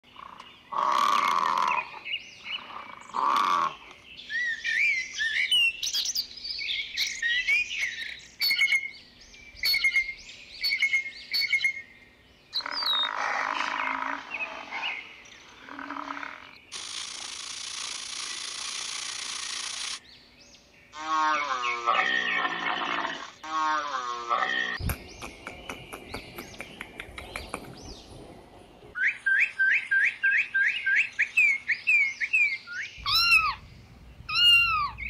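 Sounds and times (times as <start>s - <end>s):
animal loud calls: 0.2s - 2.0s, 2.6s - 3.9s, 12.6s - 16.6s, 21.0s - 25.4s, 33.0s - 33.6s, 34.3s - 35.0s
bird chirping and whistling: 4.3s - 8.9s, 9.5s - 11.8s, 29.0s - 33.6s, 34.3s - 35.0s
sharp clicks: 16.7s - 20.0s, 24.8s - 27.8s.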